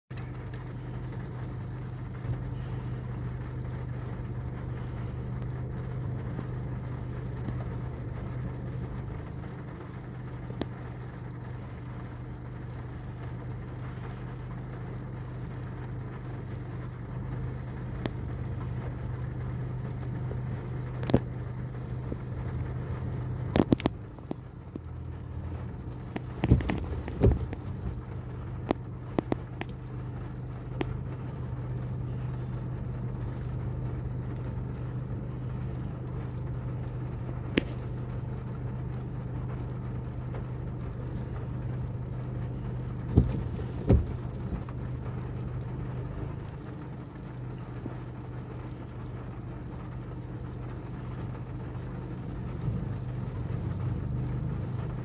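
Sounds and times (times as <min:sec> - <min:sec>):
vehicle engine humming: 0:00.0 - 0:55.0
sharp clicks and knocks: 0:26.1 - 0:28.0.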